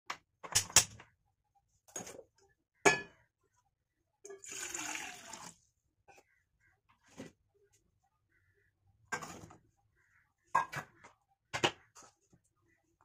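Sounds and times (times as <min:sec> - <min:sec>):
water pouring into pot: 0:04.3 - 0:05.6.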